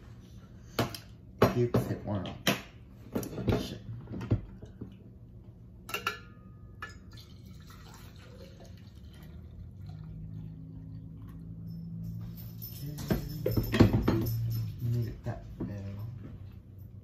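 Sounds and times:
coffee pouring into a cup: 6.9 - 12.0.

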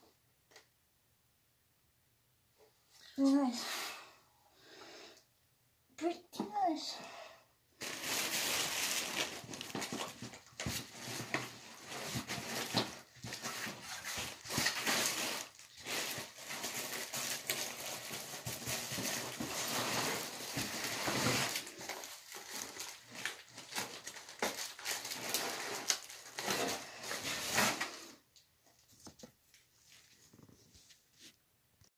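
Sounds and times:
plastic wrap and cardboard rustling: 7.8 - 31.4.

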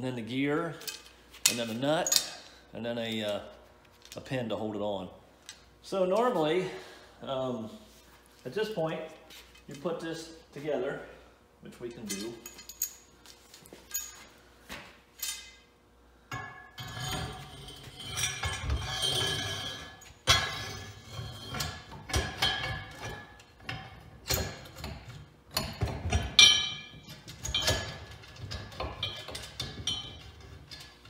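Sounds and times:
steel parts clinking: 12.0 - 13.1, 13.9 - 14.3.

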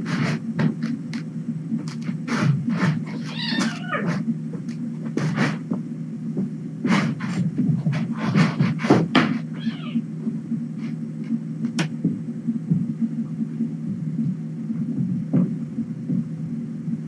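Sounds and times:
steady low hum: 0.0 - 17.0
kittens knocking and rustling: 1.8 - 5.8
kitten meowing: 3.1 - 4.2, 9.6 - 10.0.

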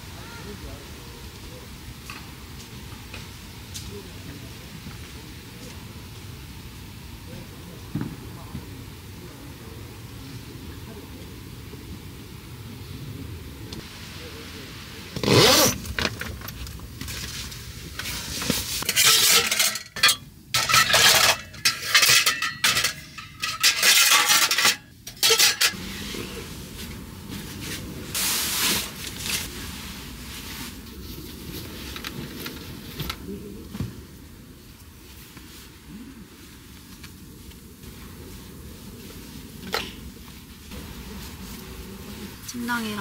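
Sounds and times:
dishes clinking while washed: 18.8 - 25.8.

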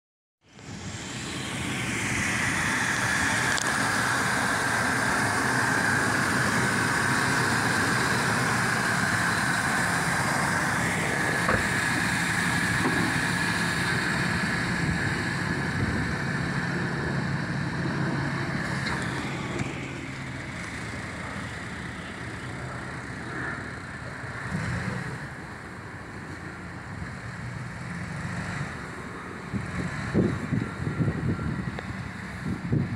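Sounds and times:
pickup engine idling: 1.2 - 24.4.

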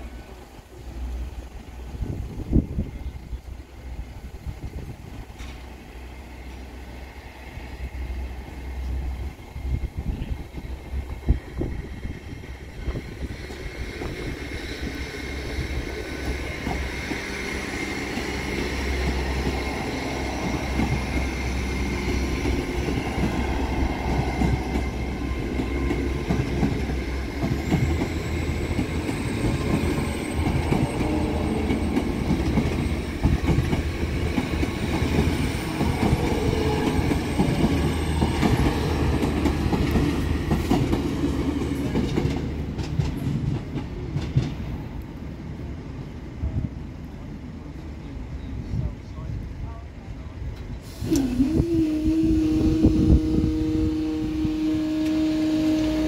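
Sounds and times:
train rumble and hum: 0.0 - 56.0
wheels clacking over rail joints: 15.8 - 44.9.

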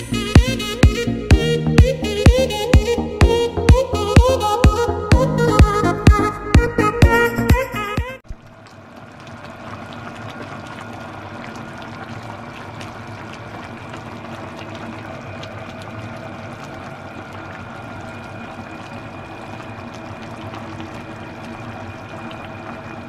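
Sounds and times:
stew bubbling in a pan: 8.2 - 23.0.

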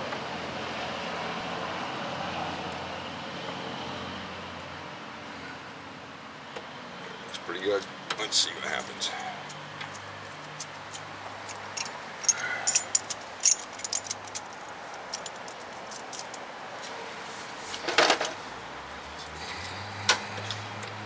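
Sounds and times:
light metallic clicks and clinks: 8.8 - 16.5
metal clatter: 10.6 - 16.4.

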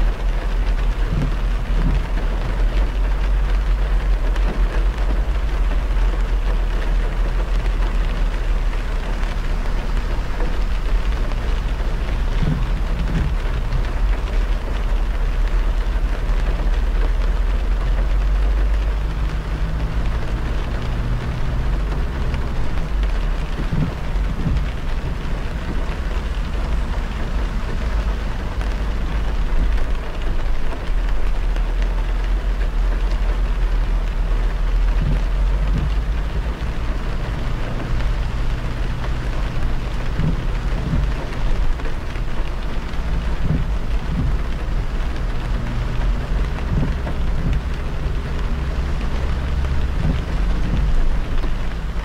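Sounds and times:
deep road rumble: 0.0 - 52.0
rain and wet tyre spray hiss: 0.0 - 52.0.

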